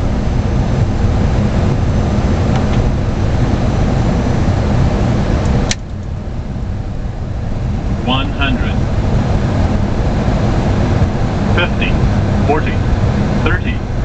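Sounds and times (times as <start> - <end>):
airflow and engine noise: 0.0 - 14.0.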